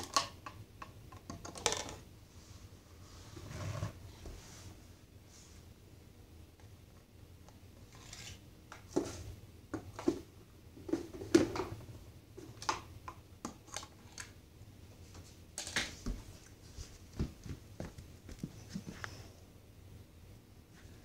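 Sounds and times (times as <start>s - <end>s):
small objects clicking and tapping: 0.0s - 2.0s.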